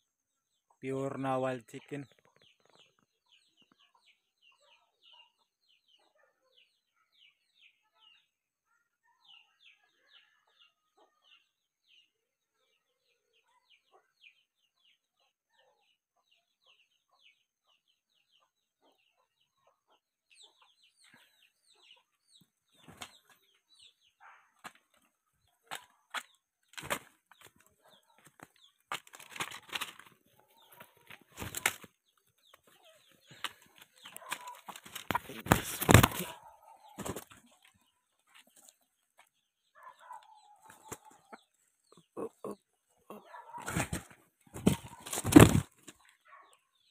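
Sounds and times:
wing flaps and feather rustles: 0:28.9 - 0:31.9.

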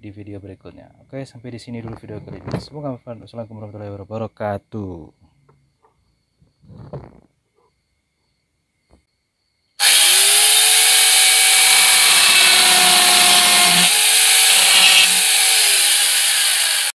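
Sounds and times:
angle grinder chainsaw running free: 0:09.8 - 0:17.0.

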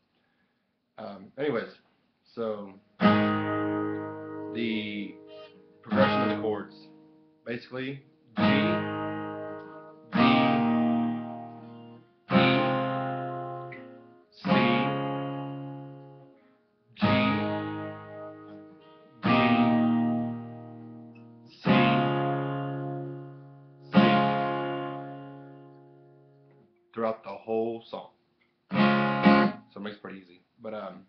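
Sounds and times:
acoustic guitar strums ringing: 0:03.0 - 0:07.4, 0:08.1 - 0:16.4, 0:17.0 - 0:26.6, 0:28.7 - 0:29.7.

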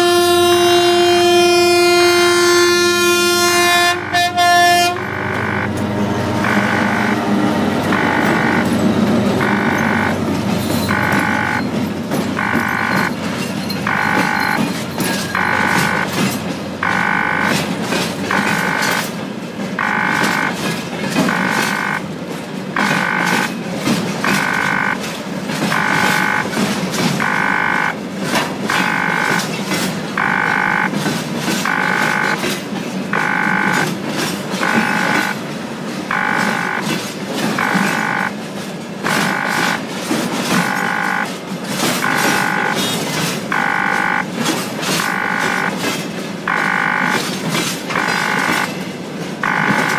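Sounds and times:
freight train rumbling: 0:00.0 - 0:46.5, 0:47.1 - 0:49.4
wheels clicking over rails: 0:03.0 - 0:49.9
electronic warning beep: 0:03.8 - 0:19.1, 0:19.8 - 0:22.1, 0:22.8 - 0:23.6, 0:24.2 - 0:28.0, 0:28.7 - 0:31.0, 0:31.6 - 0:35.4, 0:36.1 - 0:38.4, 0:39.0 - 0:41.4, 0:42.0 - 0:44.3, 0:44.9 - 0:45.9, 0:46.5 - 0:48.8, 0:49.4 - 0:49.9.

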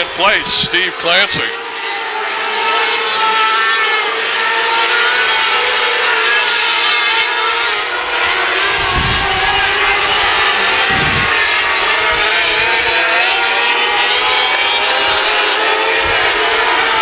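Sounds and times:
racing car engines: 0:00.0 - 0:17.0.

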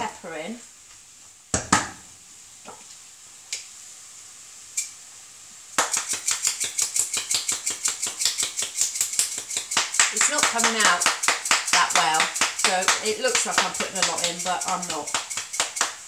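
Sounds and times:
kitchen utensils knocking: 0:05.8 - 0:16.0
pepper mill grinding clicks: 0:05.8 - 0:16.0.

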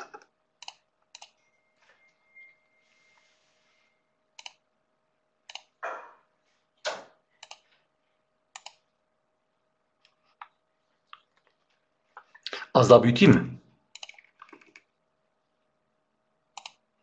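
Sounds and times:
mouse and keyboard clicking: 0:00.0 - 0:01.4, 0:04.4 - 0:04.6, 0:07.4 - 0:07.6, 0:08.6 - 0:08.8, 0:13.9 - 0:14.8, 0:16.6 - 0:16.8.

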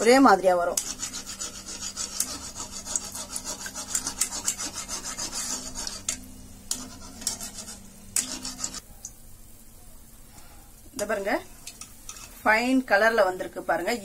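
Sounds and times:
hot oil frying: 0:00.0 - 0:14.0
skimmer scraping metal pan: 0:00.7 - 0:08.8.

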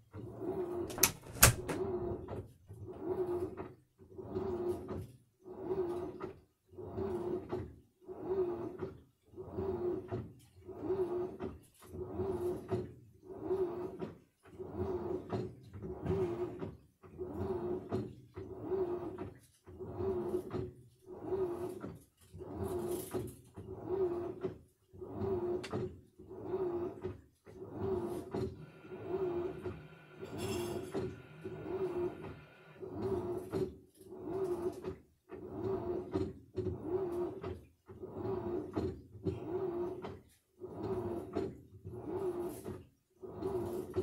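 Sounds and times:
washing machine drum turning: 0:00.8 - 0:02.3.

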